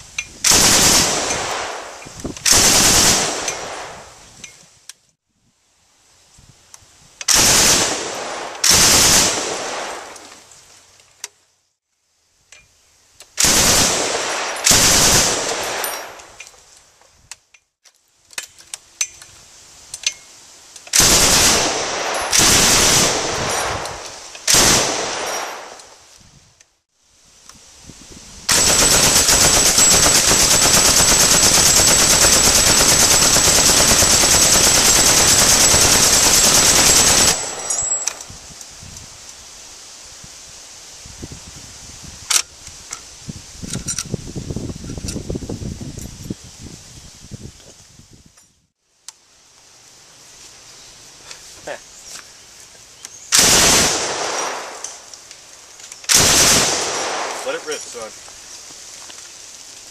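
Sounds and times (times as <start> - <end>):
machine gun firing bursts: 0.5 - 1.8, 2.5 - 4.0, 7.3 - 10.2, 13.4 - 16.2, 21.0 - 25.8, 28.5 - 38.2, 53.4 - 55.1, 56.1 - 58.0
gunfire echo: 13.4 - 16.3, 21.0 - 25.8, 28.5 - 38.2, 53.4 - 55.1, 56.1 - 58.1.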